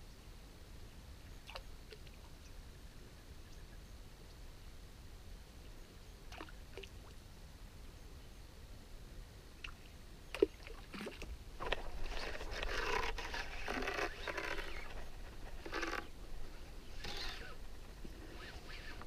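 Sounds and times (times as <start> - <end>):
water splashing and gurgling: 9.6 - 16.0.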